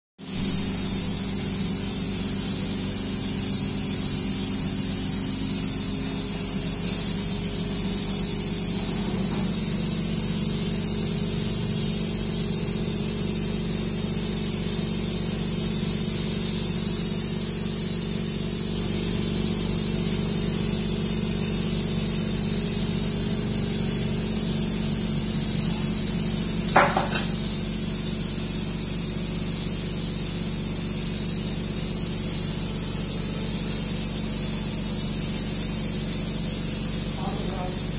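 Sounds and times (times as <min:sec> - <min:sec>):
hiss of spray mist: 0:00.2 - 0:37.9
sprayer motor hum: 0:00.4 - 0:32.1, 0:34.5 - 0:37.9
brief knock: 0:26.8 - 0:27.4.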